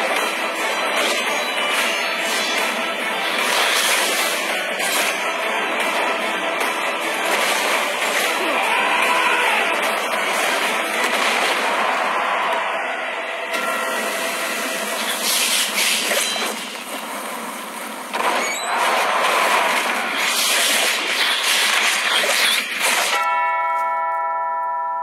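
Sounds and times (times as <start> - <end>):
ringing bell-like chord: 23.2 - 25.0.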